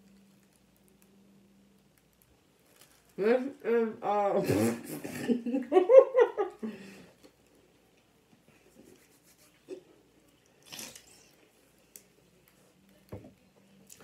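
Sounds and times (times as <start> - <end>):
faint chewing: 8.7 - 14.0.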